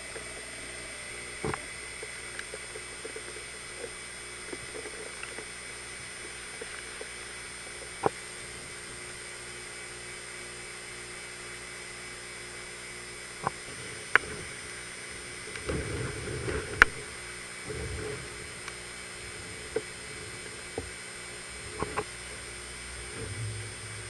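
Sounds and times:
faint whine: 0.0s - 24.0s
hurricane wind and rain: 15.5s - 24.0s.

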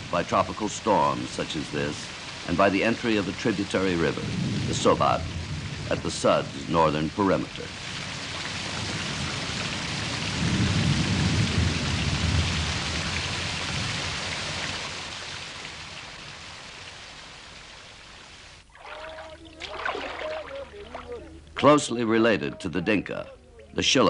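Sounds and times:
heavy rain downpour: 0.0s - 21.8s
low rumble of thunder: 3.3s - 15.0s.

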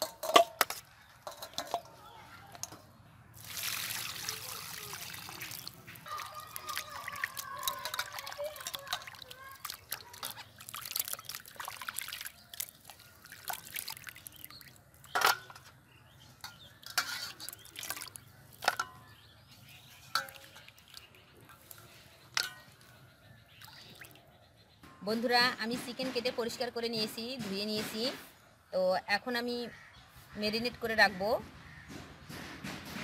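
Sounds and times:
water splashing in a steel bowl: 3.4s - 15.7s, 16.3s - 24.2s.

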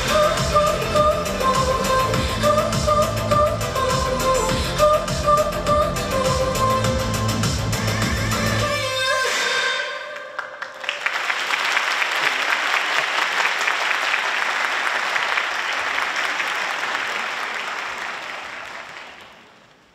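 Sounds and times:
pop backing track: 0.0s - 9.6s
audience applauding: 10.4s - 19.9s.

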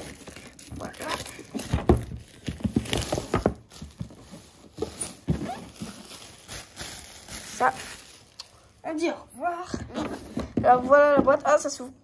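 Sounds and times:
plastic wrap crumpling: 0.0s - 9.2s.

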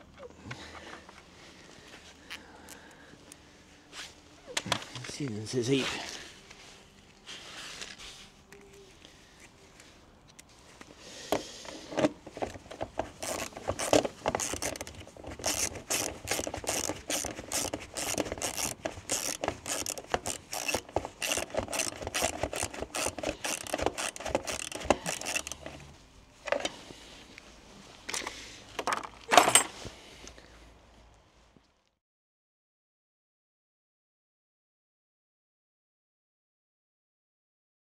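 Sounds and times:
metal parts clinking: 13.1s - 25.8s, 28.1s - 29.8s.

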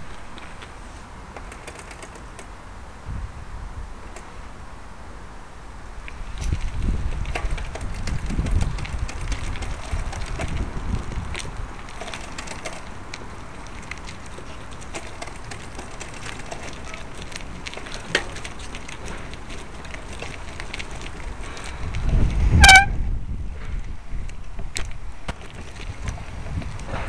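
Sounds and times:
small rattling clicks: 1.4s - 2.5s, 6.1s - 22.8s
bike tyres crunching on concrete: 6.0s - 27.0s.

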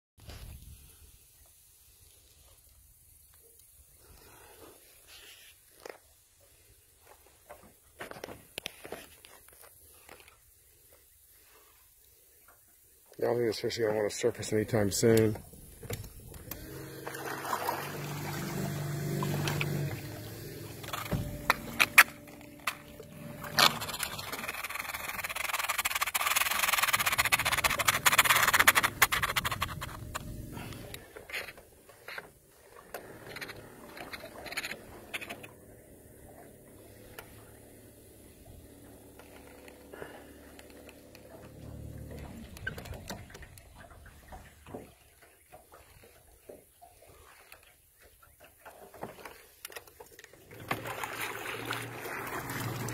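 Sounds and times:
fishing reel ticking rasp: 23.4s - 31.0s, 33.0s - 35.5s.

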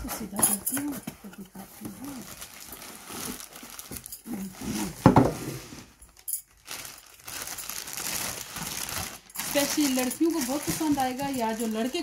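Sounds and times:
plastic wrapping rustling: 0.0s - 12.0s.

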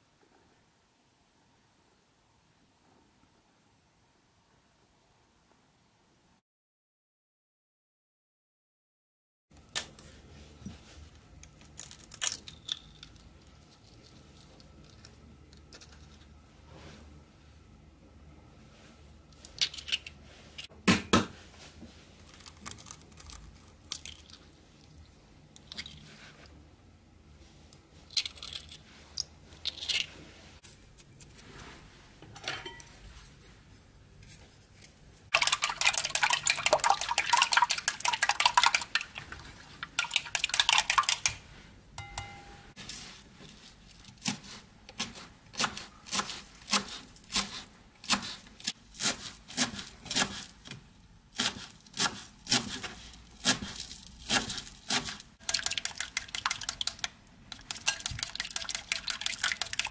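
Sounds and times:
stirring strokes in bowl: 35.2s - 42.1s, 42.8s - 50.6s, 51.4s - 59.9s.

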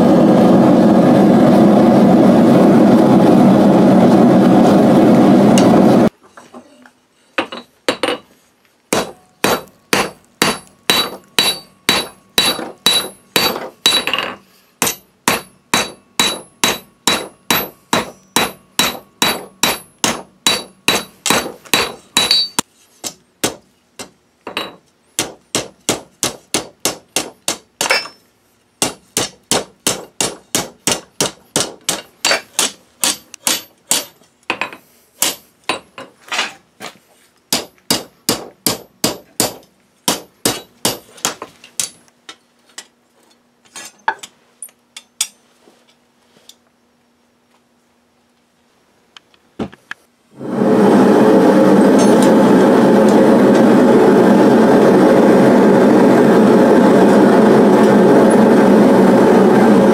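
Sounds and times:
hammer striking steel on anvil: 8.9s - 36.1s, 37.5s - 42.0s.

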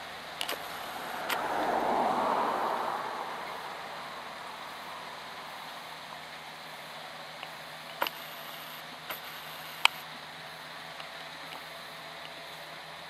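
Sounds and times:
tractor diesel engine under load: 0.0s - 13.0s
sharp clicks: 0.4s - 1.6s, 7.4s - 10.0s.

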